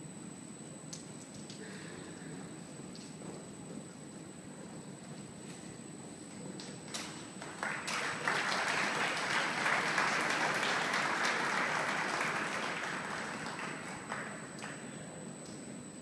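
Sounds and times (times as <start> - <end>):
audience applauding: 7.4 - 14.9.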